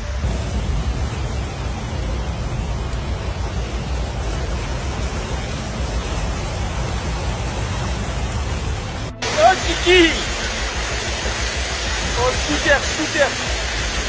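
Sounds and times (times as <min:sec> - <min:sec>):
floodwater rushing: 0:00.0 - 0:14.0
heavy low rumble: 0:00.0 - 0:14.0.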